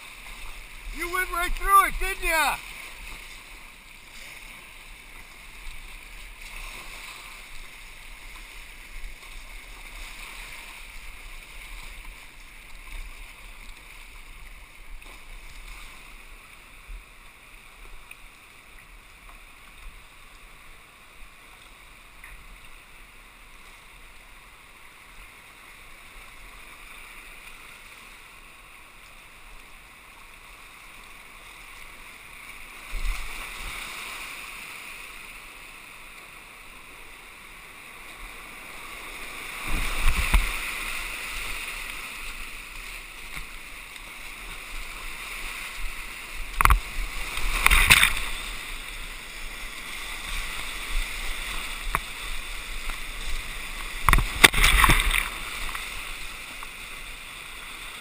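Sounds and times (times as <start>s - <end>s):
whitewater rapids rushing: 0.0s - 15.4s, 37.5s - 58.0s
water splashes: 0.0s - 58.0s.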